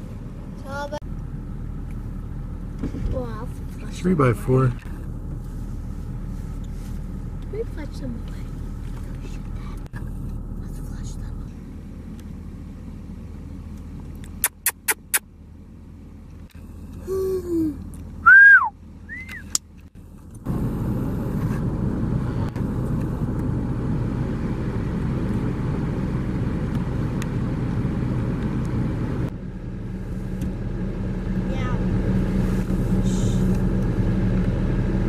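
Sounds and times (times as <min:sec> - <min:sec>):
vehicle engine running: 0:00.0 - 0:35.0
quick sharp clicks: 0:14.2 - 0:15.2
falling whistle-like calls: 0:18.3 - 0:19.5.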